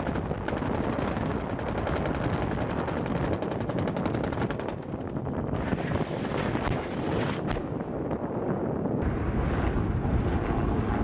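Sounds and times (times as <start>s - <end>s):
rapid automatic gunfire: 0.0s - 5.0s
helicopter rumble: 0.0s - 11.0s.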